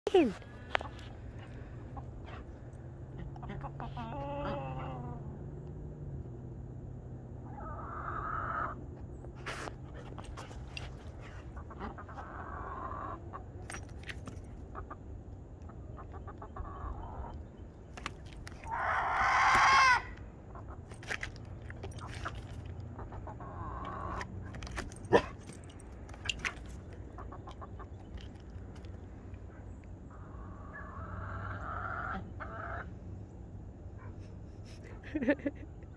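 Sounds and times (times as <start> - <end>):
chickens clucking: 0.8 - 5.3, 7.5 - 8.8, 9.5 - 13.8, 14.5 - 24.5, 26.2 - 28.7, 29.5 - 33.0.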